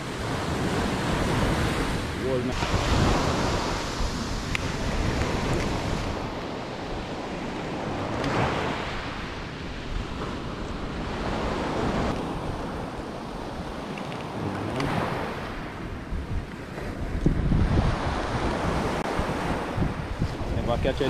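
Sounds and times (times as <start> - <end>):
surf breaking on pebble beach: 0.0 - 12.2.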